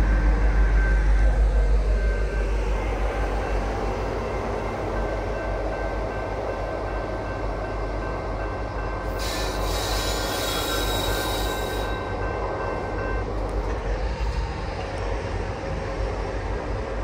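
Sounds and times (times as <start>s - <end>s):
freight train rumbling: 0.0s - 17.0s
train wheels squealing: 9.0s - 13.3s.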